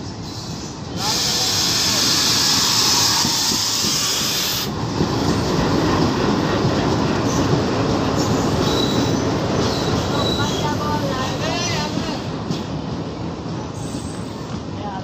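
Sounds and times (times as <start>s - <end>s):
diesel locomotive engine: 0.0s - 15.0s
train coaches rolling on rails: 0.0s - 15.0s
faint high wheel squeal: 8.2s - 10.8s, 13.8s - 14.5s.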